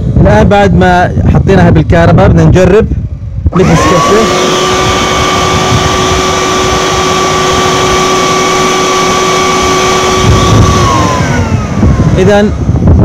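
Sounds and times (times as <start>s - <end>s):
vacuum cleaner motor whining: 3.5s - 12.8s.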